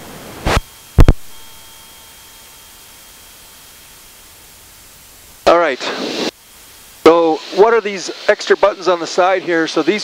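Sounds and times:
cockpit noise hiss: 0.0s - 10.0s.

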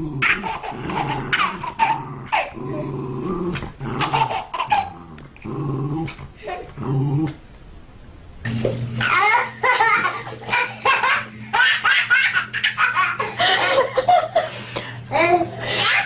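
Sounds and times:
dog growling and yipping: 0.0s - 7.5s, 8.9s - 13.0s.

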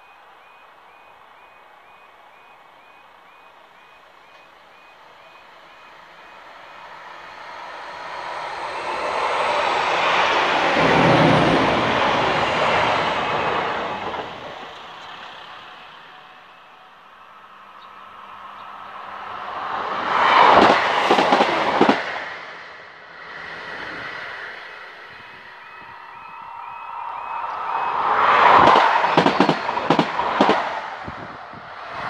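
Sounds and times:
diesel train passing close: 0.0s - 32.0s
electric train passing at speed: 0.0s - 32.0s.

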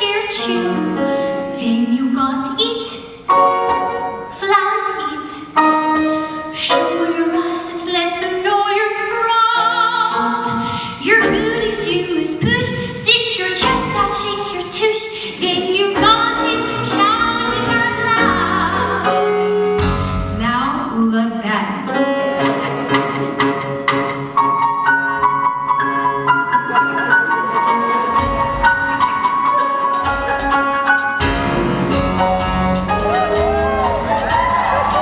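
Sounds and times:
woman singing into a microphone: 0.0s - 3.1s, 6.5s - 22.2s
live instrumental accompaniment: 0.0s - 35.0s.

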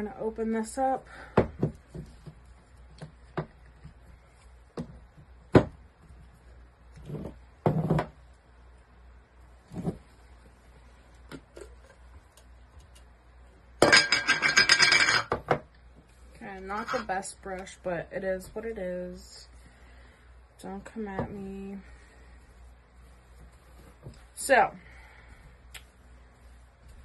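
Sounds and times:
metal lid clinking and scraping: 13.8s - 15.3s, 16.8s - 17.1s.

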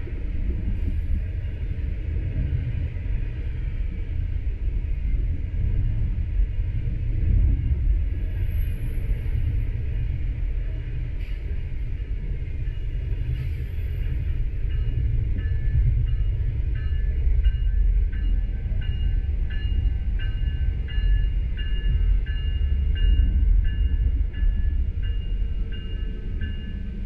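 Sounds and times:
trains rumbling past: 0.0s - 27.0s
locomotive bell ringing: 13.8s - 27.0s.

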